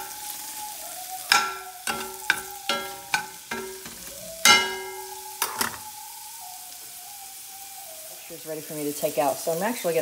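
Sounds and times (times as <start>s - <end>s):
frying sizzle: 0.0s - 10.0s
metal spoon clinking on pan: 1.3s - 5.8s.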